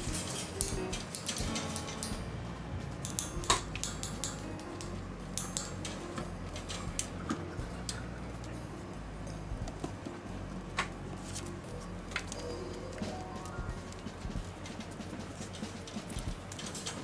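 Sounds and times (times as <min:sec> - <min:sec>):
rod clicking against wire cage: 0:00.0 - 0:02.3, 0:03.0 - 0:08.6, 0:13.9 - 0:17.0.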